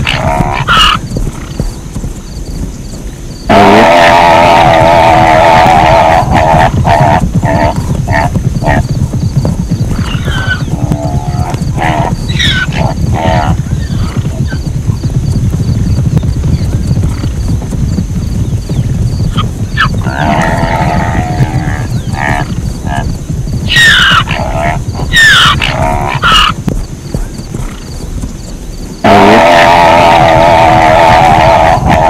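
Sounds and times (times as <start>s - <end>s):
zebra calls: 0.0s - 1.5s, 11.4s - 14.2s, 23.7s - 26.6s, 29.0s - 32.0s
steady low rumble: 0.0s - 3.5s, 4.4s - 29.2s.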